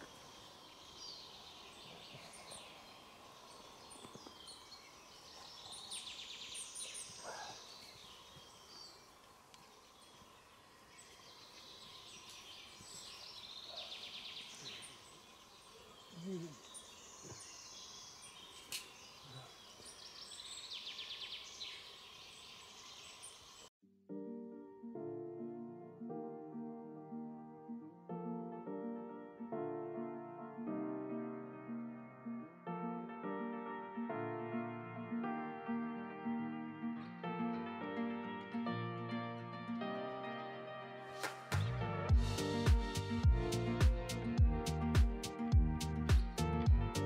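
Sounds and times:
piano music: 24.1s - 47.0s.

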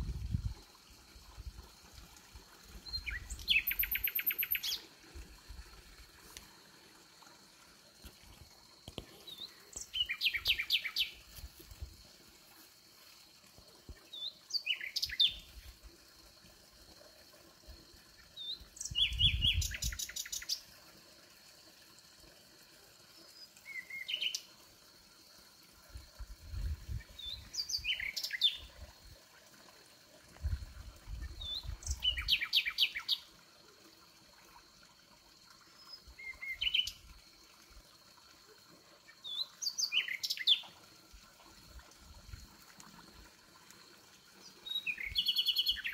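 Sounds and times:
nightingale singing: 2.9s - 4.8s, 9.3s - 11.2s, 14.1s - 15.5s, 18.5s - 20.5s, 27.2s - 28.7s, 31.4s - 33.2s, 44.6s - 45.9s.

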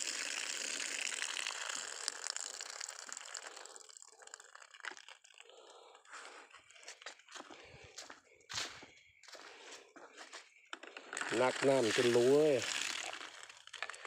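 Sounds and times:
water pouring onto ground: 0.0s - 6.4s, 11.0s - 14.0s.

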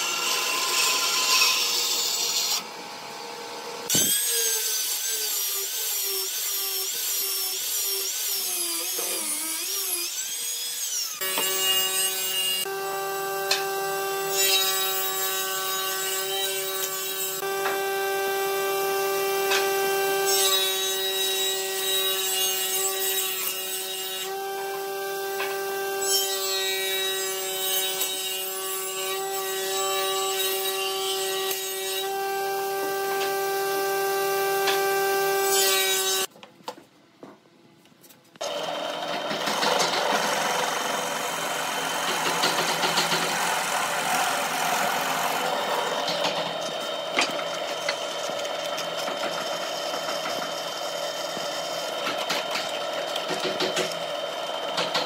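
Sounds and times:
drill press boring wood: 38.4s - 55.0s.

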